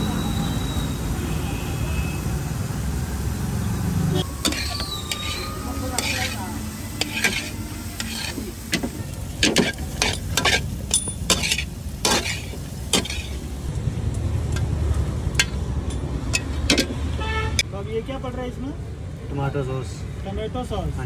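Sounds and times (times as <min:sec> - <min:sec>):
light sizzling: 0:00.1 - 0:17.4
spatula knocking and scraping pan: 0:07.0 - 0:10.7, 0:11.3 - 0:13.3.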